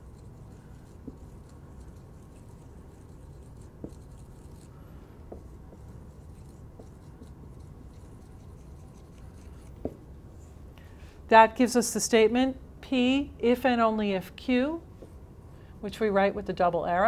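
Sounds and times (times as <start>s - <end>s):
marker writing on whiteboard: 0.0s - 10.1s
low room hum: 0.0s - 17.0s.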